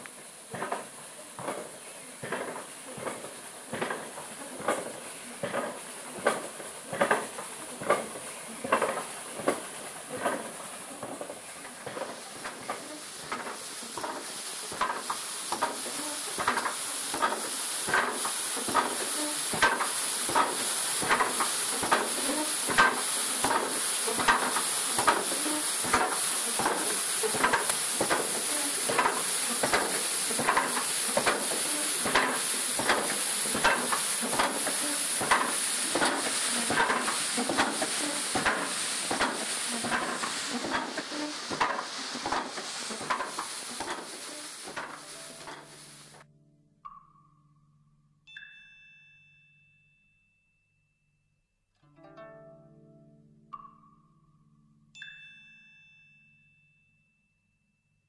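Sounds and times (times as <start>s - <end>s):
rushing water from water wheel: 0.0s - 46.2s.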